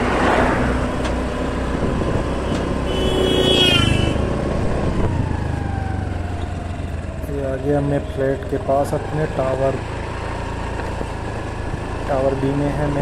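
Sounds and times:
road and wind noise: 0:00.0 - 0:13.0
scooter engine running: 0:04.2 - 0:13.0.

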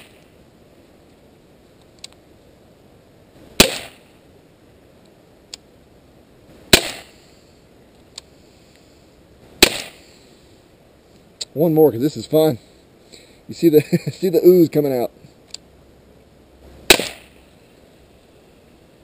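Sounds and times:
faint click: 0:01.8 - 0:02.2
pellet pistol pops: 0:03.6 - 0:04.0, 0:06.7 - 0:07.1, 0:09.6 - 0:10.0, 0:16.9 - 0:17.4.

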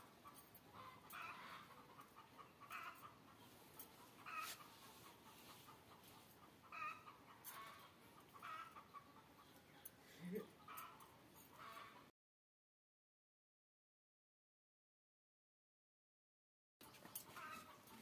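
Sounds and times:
faint chicken clucking: 0:00.0 - 0:12.1, 0:16.8 - 0:18.0.

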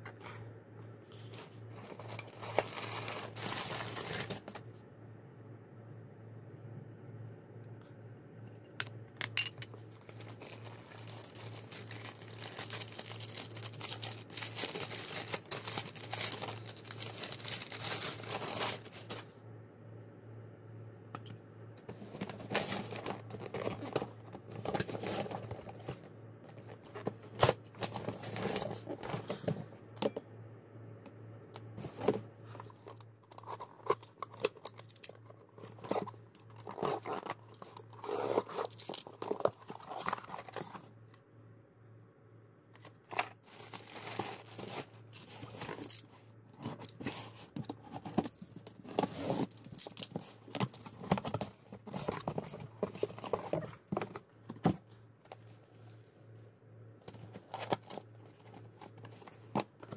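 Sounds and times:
packing paper crinkling: 0:01.3 - 0:04.6, 0:09.9 - 0:19.3, 0:42.8 - 0:46.0.

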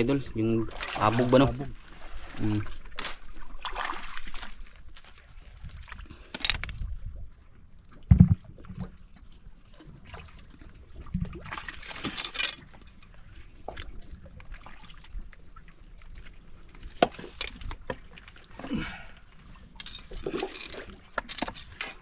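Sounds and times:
water splashing and trickling: 0:00.0 - 0:22.0
dull low thump: 0:08.1 - 0:08.9.

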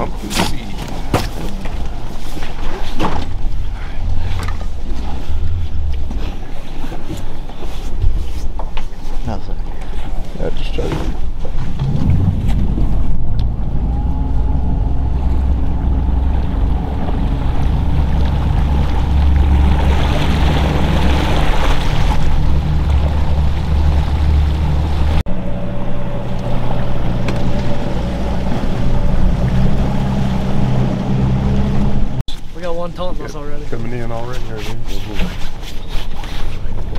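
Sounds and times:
water rushing: 0:00.0 - 0:07.6, 0:09.3 - 0:35.2
motorboat engine drone: 0:00.4 - 0:07.6, 0:11.3 - 0:32.2
wind on microphone: 0:11.6 - 0:32.2.

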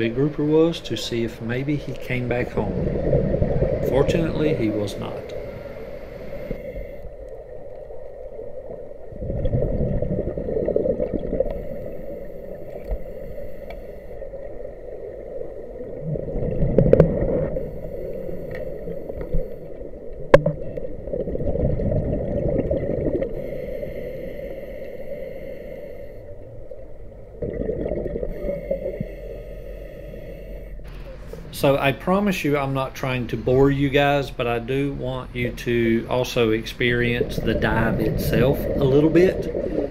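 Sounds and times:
bubbles gurgling underwater: 0:02.1 - 0:04.9, 0:07.7 - 0:11.8, 0:15.0 - 0:17.6, 0:20.1 - 0:23.4, 0:27.2 - 0:28.6, 0:36.8 - 0:39.9.

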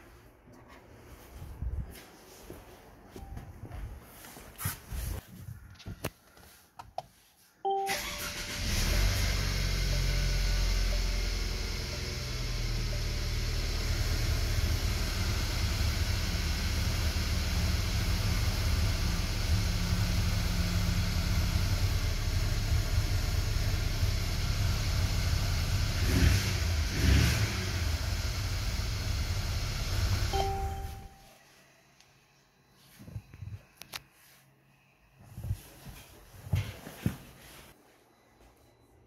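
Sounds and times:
short electronic tone: 0:07.7 - 0:09.2, 0:30.3 - 0:31.5
car engine idling: 0:08.4 - 0:26.0.

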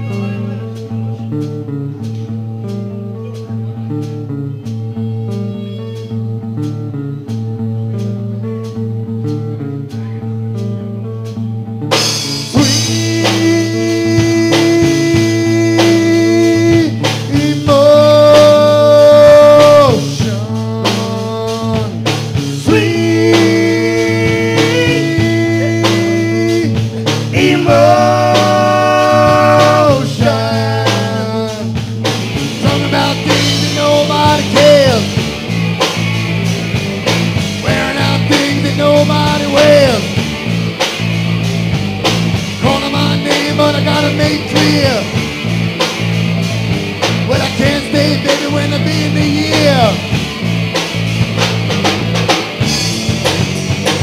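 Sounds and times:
drums and bass: 0:00.0 - 0:54.0
electric guitar picking: 0:00.0 - 0:54.0
lead guitar bending notes: 0:00.0 - 0:54.0.

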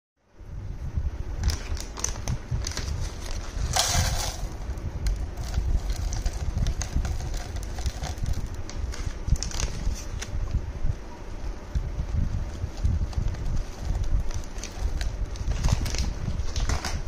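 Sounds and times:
steady low rumble: 0:00.2 - 0:17.0
packet rustling: 0:01.4 - 0:10.4, 0:12.4 - 0:17.0.

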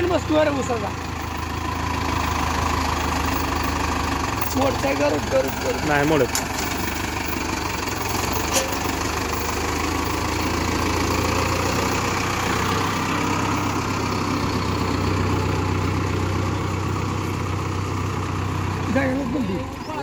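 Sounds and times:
tractor diesel engine idling: 0:00.0 - 0:20.0.

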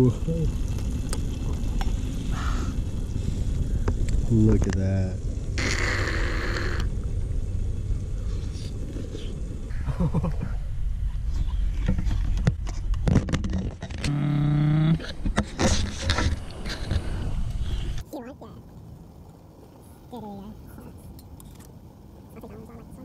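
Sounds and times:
steady low rumble: 0:00.0 - 0:23.0
man humming mmm: 0:14.1 - 0:15.0.

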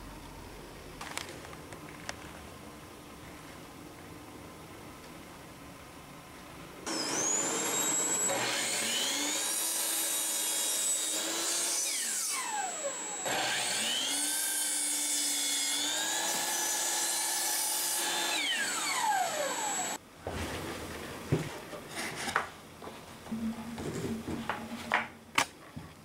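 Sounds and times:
miter saw cutting wood: 0:06.9 - 0:20.0
vacuum cleaner running: 0:06.9 - 0:20.0.

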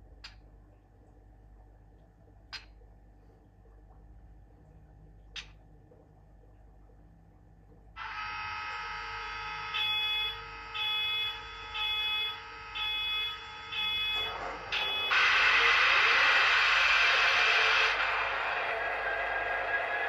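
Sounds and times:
electrical hum: 0:00.0 - 0:20.0
high beeping alarm: 0:08.0 - 0:15.4
diesel engine sound: 0:13.9 - 0:20.0.

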